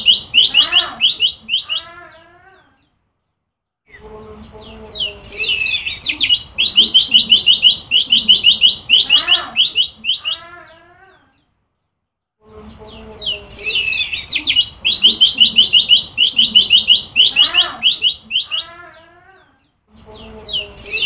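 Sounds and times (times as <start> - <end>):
bird singing rapid sharp chirps: 0.0 - 1.9, 4.0 - 10.5, 12.9 - 18.7, 20.2 - 21.0.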